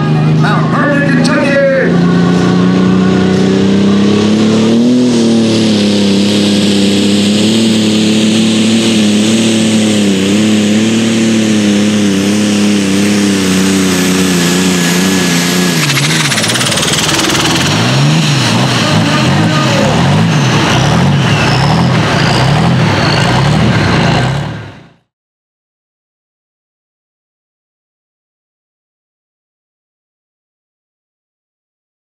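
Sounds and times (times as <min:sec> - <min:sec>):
diesel engine at full throttle: 0:00.0 - 0:25.1
high turbo whine: 0:00.0 - 0:25.1.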